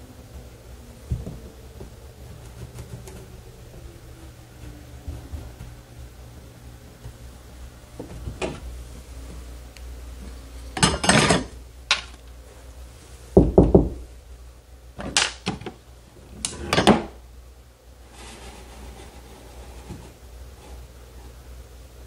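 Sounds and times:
knuckles knocking on drywall: 13.4s - 14.0s.

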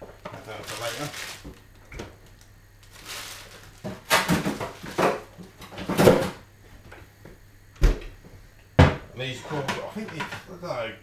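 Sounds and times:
frozen food packets rustling: 0.1s - 5.4s.

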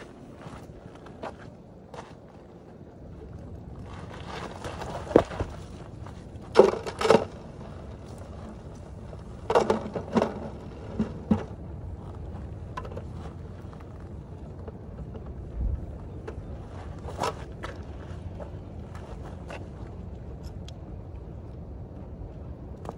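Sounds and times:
stones knocking and crunching: 4.0s - 15.4s.

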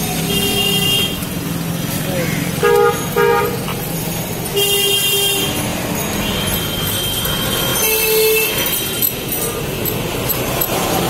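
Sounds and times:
busy road traffic: 0.0s - 11.0s
vehicle horns honking: 0.2s - 1.2s, 2.2s - 3.8s, 4.5s - 9.2s.

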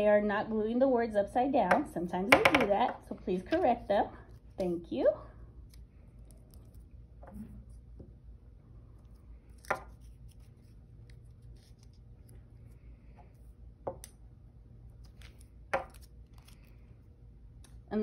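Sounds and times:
taps on table: 1.7s - 2.7s.

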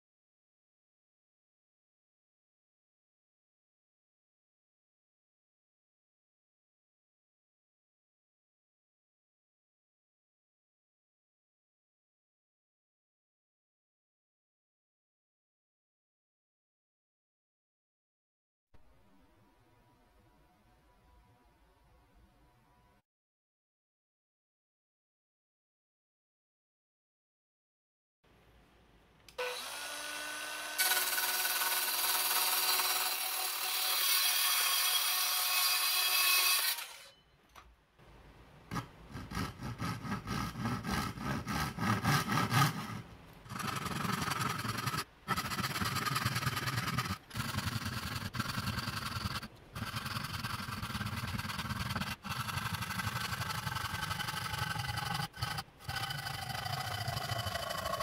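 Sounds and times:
hand saw cutting wood: 29.4s - 37.2s, 38.7s - 58.0s
loud steady tool noise: 29.4s - 37.2s, 39.7s - 58.0s.

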